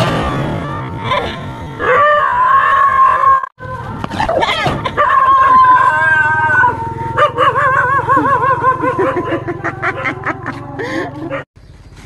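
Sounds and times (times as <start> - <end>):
dog howling: 1.8 - 11.4.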